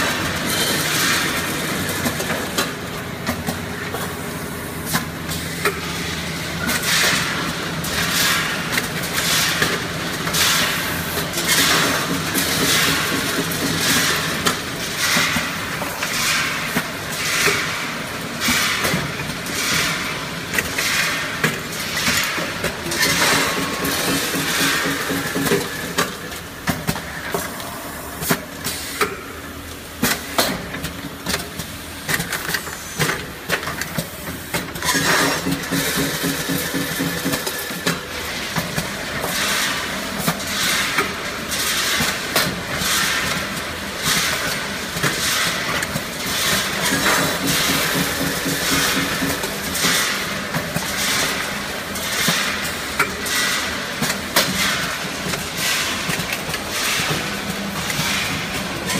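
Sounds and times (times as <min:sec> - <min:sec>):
machine clacking: 0:34.5 - 0:43.4, 0:44.0 - 0:58.9.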